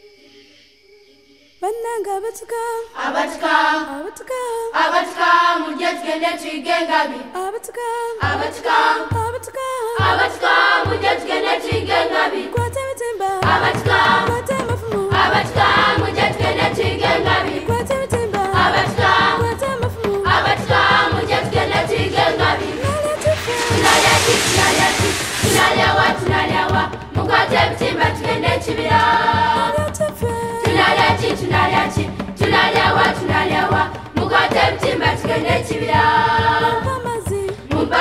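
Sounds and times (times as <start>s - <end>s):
choir singing: 0.0s - 9.2s, 10.0s - 12.7s, 13.4s - 37.0s, 37.7s - 38.0s
drum beat: 12.6s - 38.0s.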